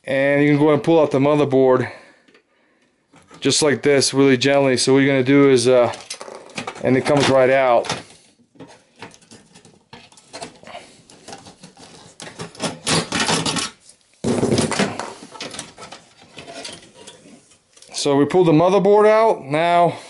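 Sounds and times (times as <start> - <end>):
scraping and clicking of metal parts: 5.8 - 18.0.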